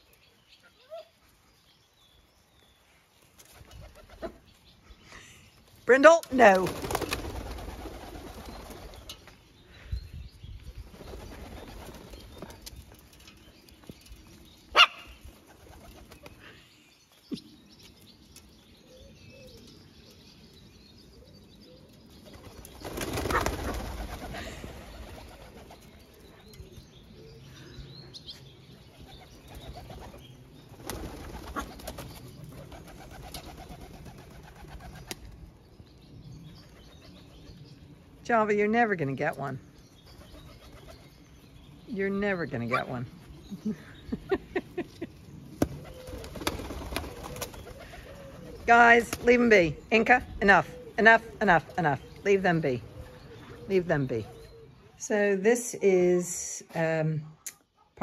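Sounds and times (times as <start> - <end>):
doves flapping wings: 6.2 - 9.4, 10.8 - 16.6, 22.1 - 26.3, 28.9 - 35.5, 44.3 - 49.5
doves cooing: 21.1 - 35.2, 42.6 - 55.0.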